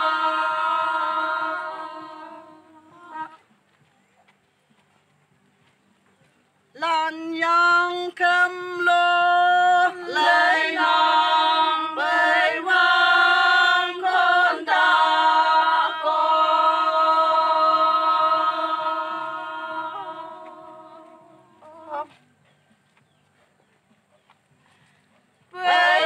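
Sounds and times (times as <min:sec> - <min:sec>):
women singing in unison: 0:00.0 - 0:03.4, 0:07.4 - 0:22.2, 0:25.5 - 0:26.0.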